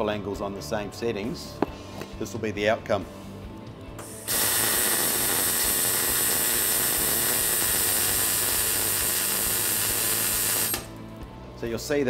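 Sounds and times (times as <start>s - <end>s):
welding arc: 4.0s - 11.0s.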